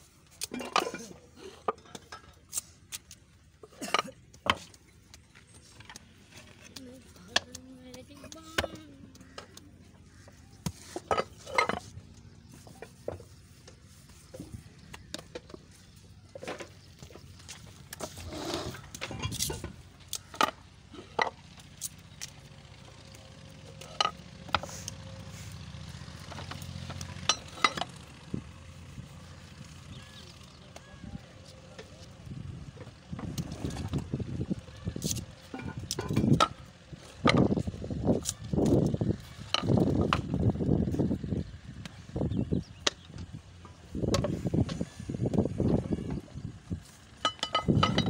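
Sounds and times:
tiles and pallets clattering: 0:10.9 - 0:12.0.

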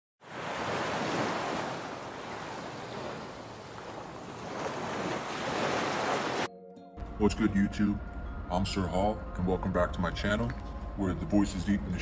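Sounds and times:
waves breaking on beach: 0:00.2 - 0:06.5.

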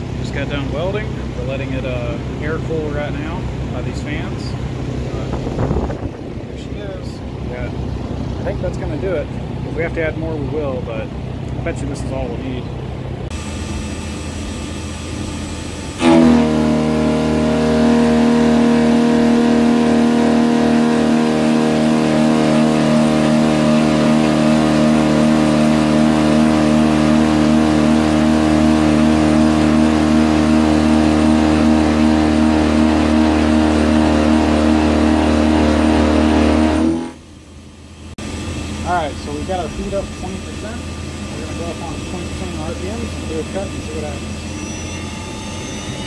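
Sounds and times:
milling cutter droning in steel: 0:13.2 - 0:46.0
milling machine running: 0:13.3 - 0:37.2, 0:38.2 - 0:46.0.

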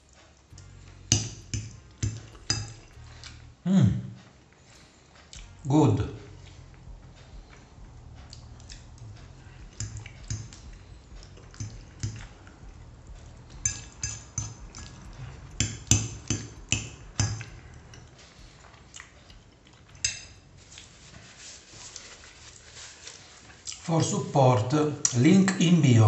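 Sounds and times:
chewing: 0:00.0 - 0:03.6, 0:06.4 - 0:23.9
fork clinking on ceramic plate: 0:01.1 - 0:03.0, 0:09.7 - 0:10.6, 0:13.6 - 0:18.1.

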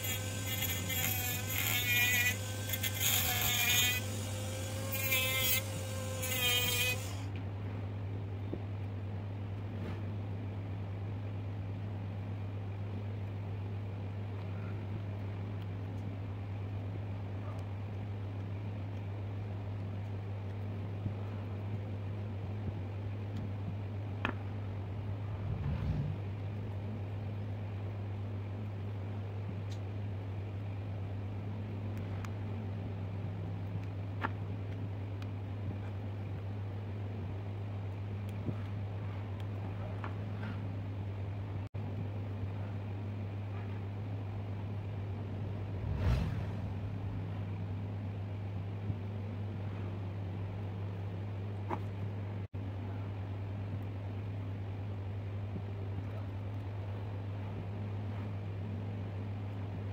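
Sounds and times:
steady low hum: 0:00.0 - 0:59.9
low hum: 0:20.7 - 0:29.2, 0:38.5 - 0:53.1
handling rumble: 0:24.4 - 0:27.6, 0:43.4 - 0:50.2.

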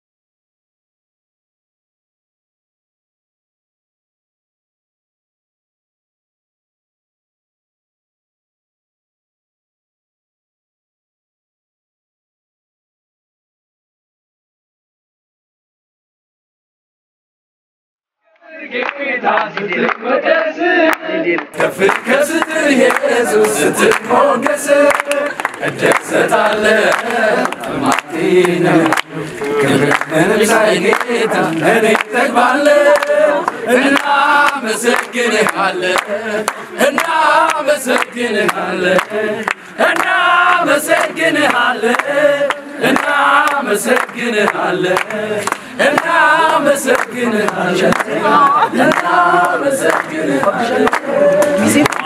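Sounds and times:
men singing and chanting: 0:18.4 - 0:52.0
hand clapping: 0:18.8 - 0:52.0.

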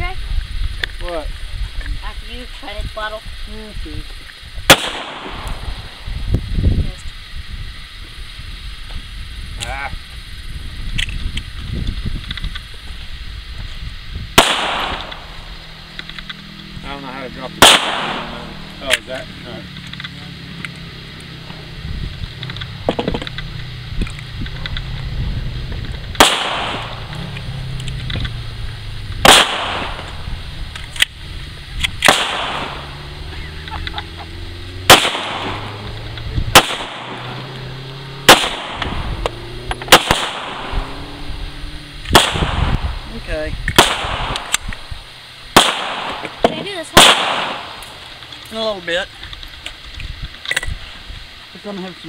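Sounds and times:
pistol shots: 0:04.7 - 0:05.7, 0:14.4 - 0:15.5, 0:17.6 - 0:19.0, 0:26.2 - 0:27.2, 0:29.2 - 0:30.2, 0:32.0 - 0:33.0, 0:34.9 - 0:35.8, 0:36.5 - 0:37.4, 0:38.2 - 0:39.1, 0:39.9 - 0:41.0, 0:42.1 - 0:42.9, 0:43.7 - 0:44.7, 0:45.5 - 0:48.0.

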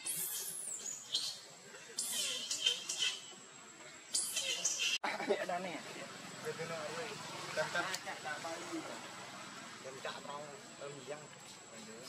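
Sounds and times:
young monkey screaming: 0:02.0 - 0:03.3, 0:04.2 - 0:05.0.

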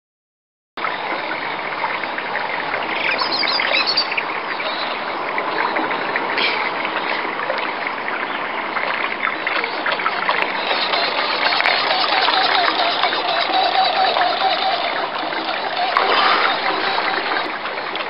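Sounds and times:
steady outdoor noise: 0:00.8 - 0:18.0
bird chirps: 0:03.0 - 0:05.0.

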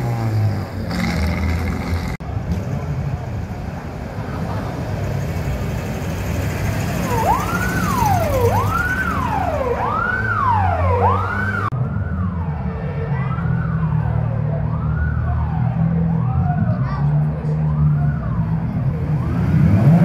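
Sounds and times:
car engines running: 0:00.0 - 0:20.0
siren wailing: 0:07.0 - 0:16.8.

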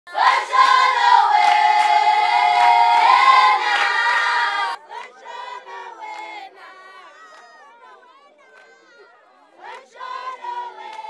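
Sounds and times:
women singing together: 0:00.1 - 0:07.1, 0:09.5 - 0:11.0.

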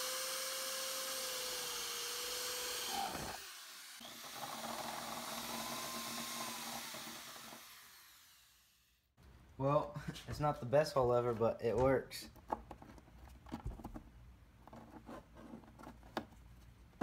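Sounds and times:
electric drill whirring: 0:00.0 - 0:09.0.

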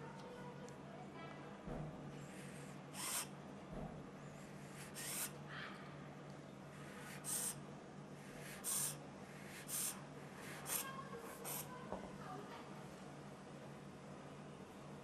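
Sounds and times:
hissing puffs of air: 0:02.2 - 0:03.3, 0:06.8 - 0:11.7.

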